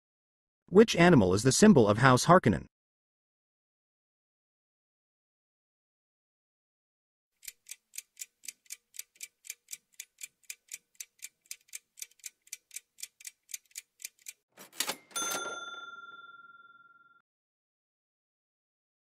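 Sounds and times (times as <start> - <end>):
bell-like chime: 14.8 - 17.2.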